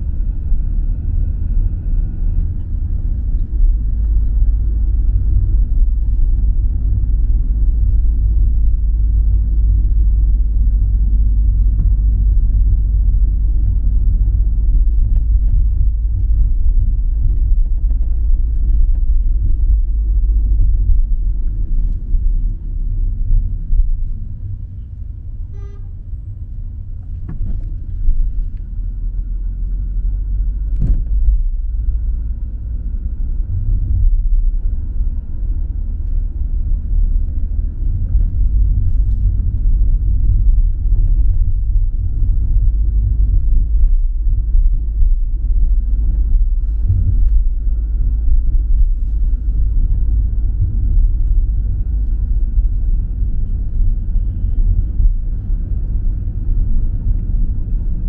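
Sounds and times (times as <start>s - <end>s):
car engine and road rumble: 0.0s - 58.0s
short pitched beep: 25.5s - 25.9s.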